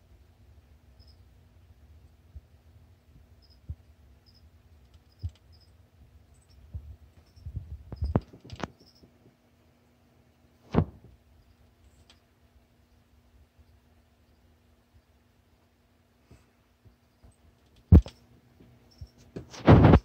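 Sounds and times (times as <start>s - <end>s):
phone handling knocks and rubbing: 7.3s - 9.2s, 17.9s - 18.2s.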